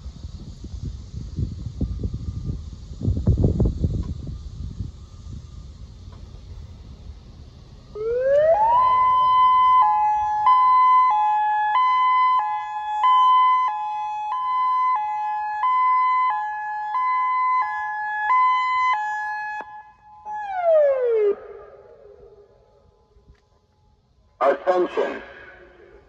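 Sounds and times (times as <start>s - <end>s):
wind on microphone: 0.0s - 6.8s
electronic warning siren: 7.9s - 22.9s.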